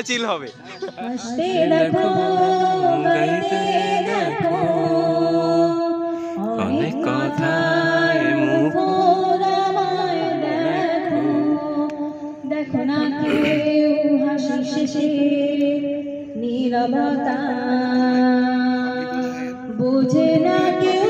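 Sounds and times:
woman singing into microphone: 0.9 - 21.0.

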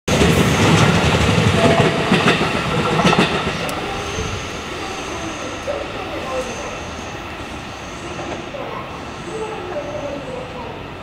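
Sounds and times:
train wheels clacking over rail joints: 0.1 - 4.1.

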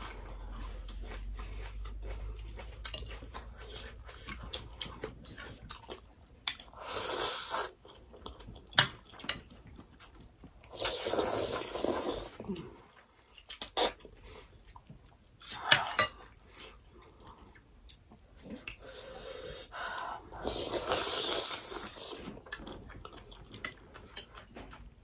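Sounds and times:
chewing: 0.0 - 25.0
slurping noodles: 6.7 - 7.8, 10.7 - 12.4, 18.8 - 22.2.

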